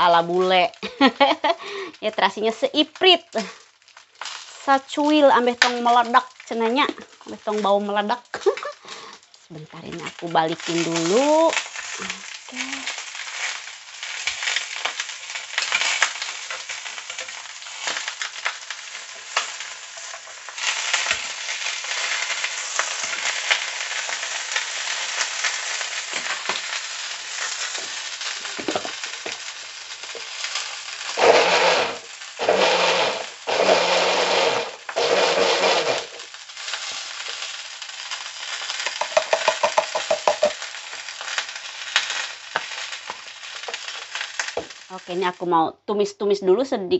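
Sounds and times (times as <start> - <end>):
food sizzling in oil: 0.0 - 45.6
cooking utensil clicks and scrapes: 12.9 - 26.7, 30.1 - 44.8
short loud noise bursts: 31.2 - 36.2.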